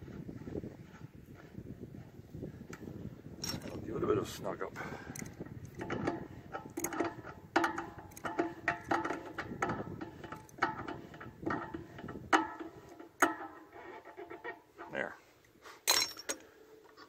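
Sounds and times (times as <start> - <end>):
wrench clicking and scraping on metal: 3.4 - 3.8, 5.1 - 15.0, 15.8 - 16.4.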